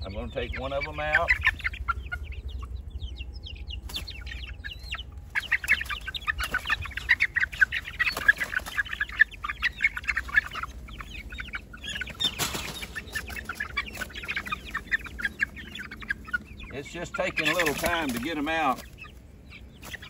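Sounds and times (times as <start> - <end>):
chicks peeping: 0.0 - 20.0
rustle of wing-flapping: 5.3 - 9.3, 12.1 - 14.5, 17.4 - 19.1.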